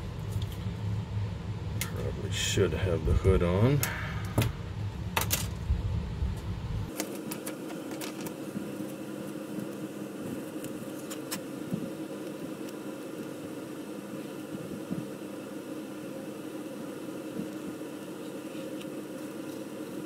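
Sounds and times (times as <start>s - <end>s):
steady background hum: 0.0s - 20.0s
masking tape clicks and rustles: 6.9s - 13.6s, 17.2s - 20.0s.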